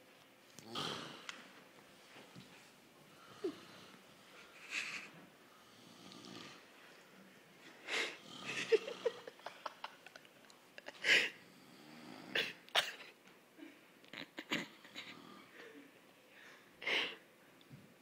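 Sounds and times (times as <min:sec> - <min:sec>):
person snorting and wheezing: 0:00.6 - 0:01.3, 0:07.9 - 0:09.4.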